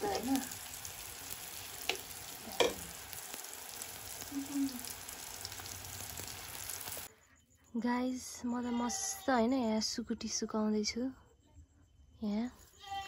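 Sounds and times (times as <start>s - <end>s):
batter sizzling in hot oil: 0.0s - 7.1s.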